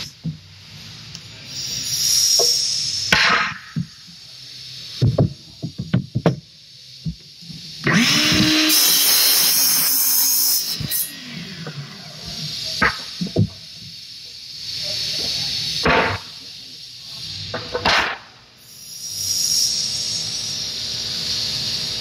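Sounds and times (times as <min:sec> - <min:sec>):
miter saw cutting wood: 0:07.8 - 0:13.9.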